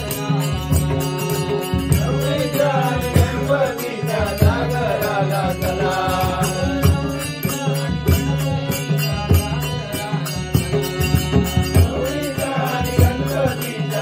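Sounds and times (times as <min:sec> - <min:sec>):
harmonium drone: 0:00.0 - 0:14.0
man singing: 0:00.0 - 0:14.0
hand drums playing: 0:10.5 - 0:14.0.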